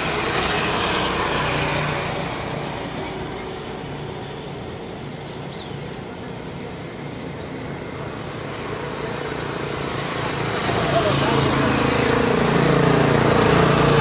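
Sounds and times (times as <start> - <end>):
steady engine hum: 0.0 - 14.0.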